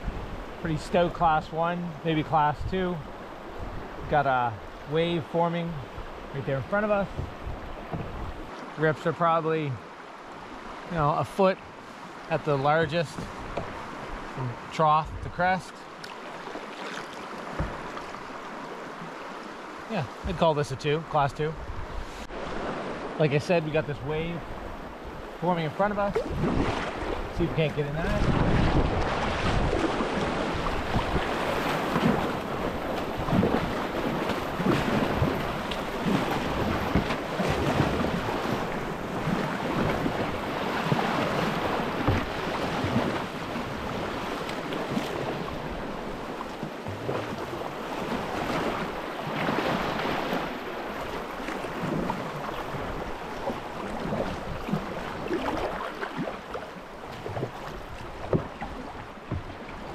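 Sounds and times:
small waves splashing: 0.0 - 59.9
wind buffeting microphone: 7.1 - 8.5, 21.6 - 23.1, 26.2 - 49.8
tidal current rushing: 16.2 - 56.3.

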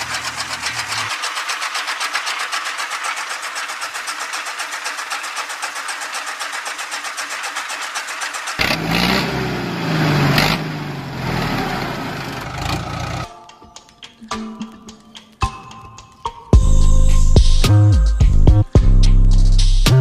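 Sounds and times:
flour mill rattling: 0.0 - 9.4
deep mechanical running: 0.0 - 13.3.

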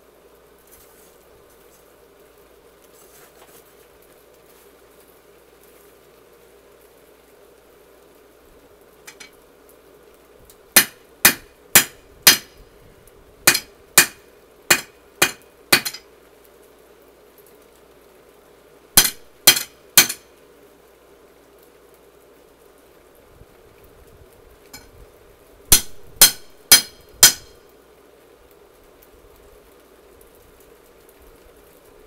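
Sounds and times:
hammer clanging on anvil: 13.5 - 16.0, 19.0 - 20.2, 25.7 - 27.5.

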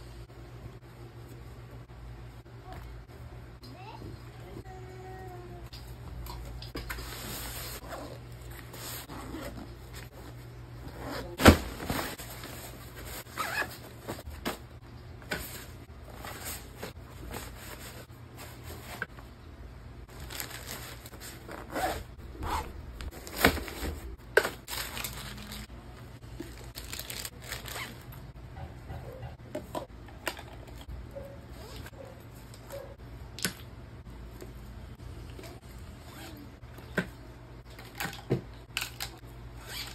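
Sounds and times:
clothes and nylon bags rustling: 6.5 - 19.3, 20.1 - 28.3.

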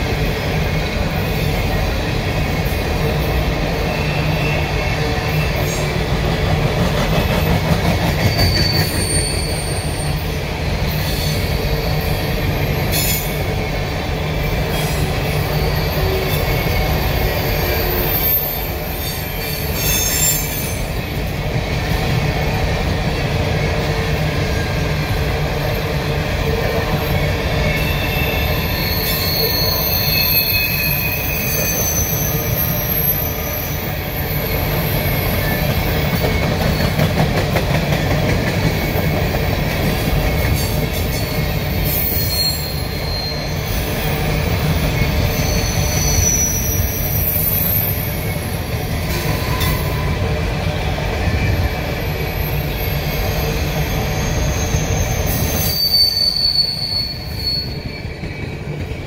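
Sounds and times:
train wheels rumbling on rail: 0.0 - 59.0
high-pitched wheel squeal: 8.1 - 10.2, 17.4 - 20.9, 27.6 - 35.6, 41.2 - 44.2, 44.9 - 48.6, 52.6 - 58.3.

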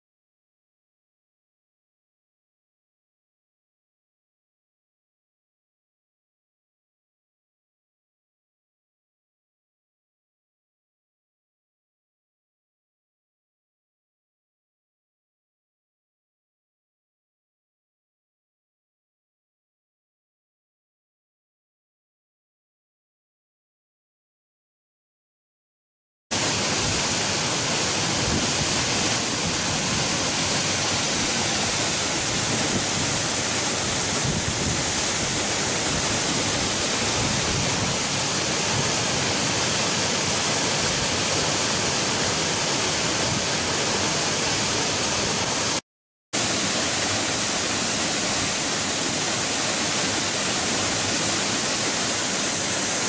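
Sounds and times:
waterfall rushing: 26.3 - 45.8, 46.4 - 53.0.

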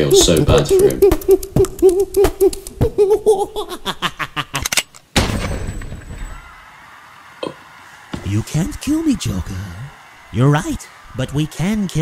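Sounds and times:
cartoon villain laughing: 0.1 - 4.8
quick run of clicks: 0.2 - 3.0.

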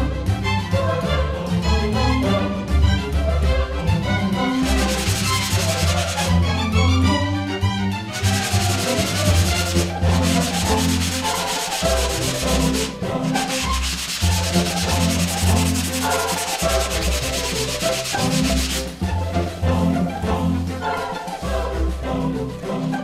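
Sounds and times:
sanding block scratching: 4.6 - 6.4, 8.1 - 19.0.

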